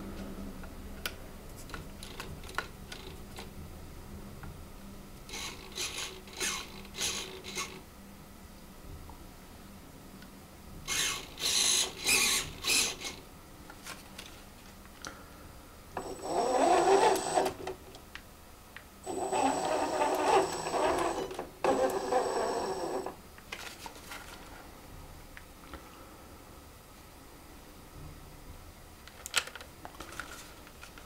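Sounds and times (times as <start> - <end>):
electric motors whirring: 5.3 - 7.8, 10.9 - 13.2, 16.0 - 17.7, 19.0 - 23.2
steady high whine: 19.0 - 23.3.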